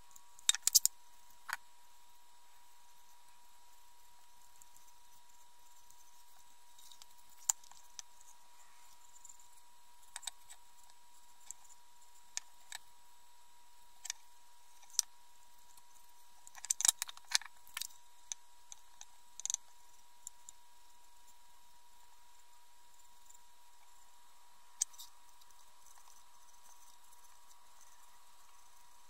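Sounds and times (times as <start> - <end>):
faint steady high tone: 1.9 - 9.6, 19.8 - 29.0.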